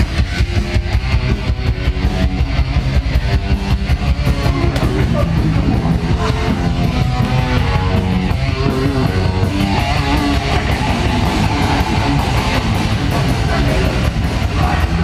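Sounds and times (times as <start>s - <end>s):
live heavy metal band: 0.0s - 15.0s.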